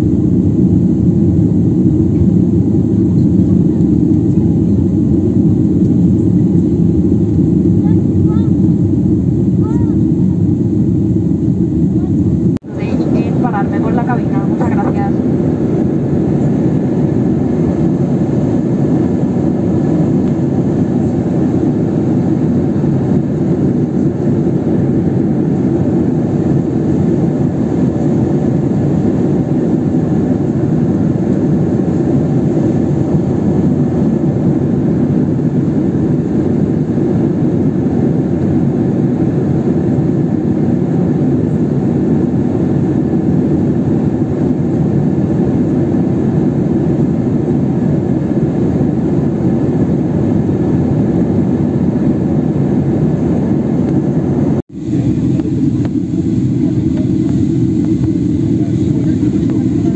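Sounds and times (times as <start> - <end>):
airliner cabin engine drone: 0.0 - 59.9.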